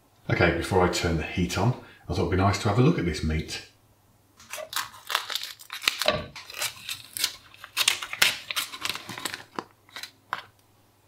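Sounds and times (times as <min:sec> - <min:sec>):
plastic film crinkling: 0:04.4 - 0:10.5.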